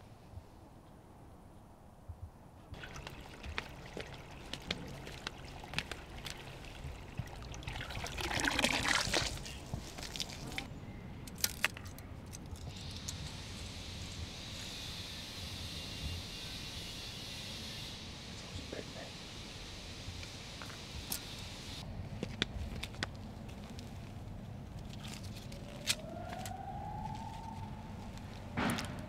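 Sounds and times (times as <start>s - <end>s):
hose water pouring into pond: 2.7s - 10.7s.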